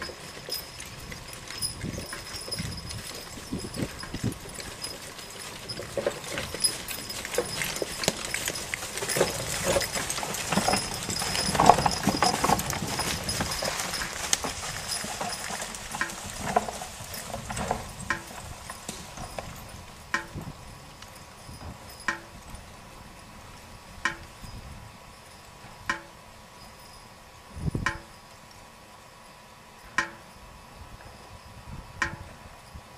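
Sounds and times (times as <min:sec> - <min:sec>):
wagon rolling and knocking: 0:00.0 - 0:22.7
hooves clopping on leaves: 0:00.0 - 0:30.3.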